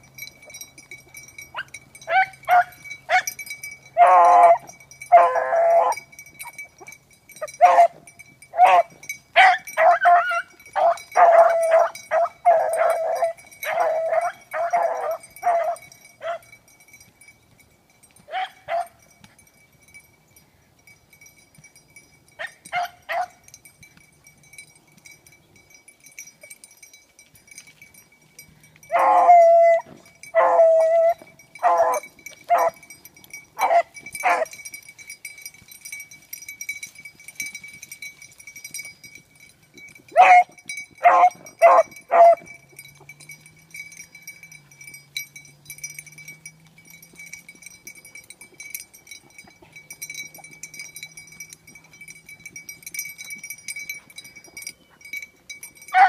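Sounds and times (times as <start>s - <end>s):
dogs baying: 4.0s - 16.6s, 28.9s - 33.0s, 33.6s - 34.7s, 40.1s - 44.6s.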